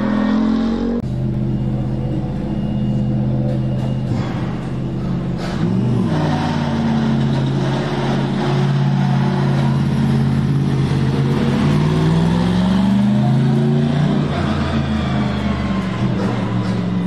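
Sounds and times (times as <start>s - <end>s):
race car engine: 0.0s - 17.0s.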